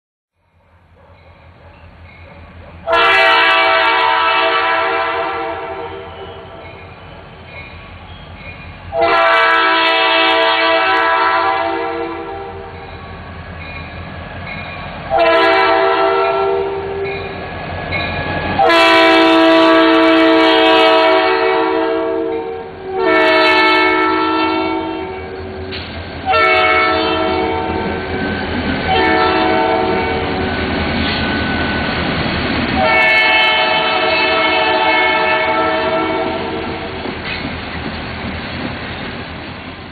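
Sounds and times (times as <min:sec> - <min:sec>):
locomotive air horn blasts: 0:02.9 - 0:06.6, 0:08.9 - 0:12.8, 0:15.1 - 0:17.1, 0:18.6 - 0:28.0, 0:28.9 - 0:30.5, 0:32.8 - 0:36.9.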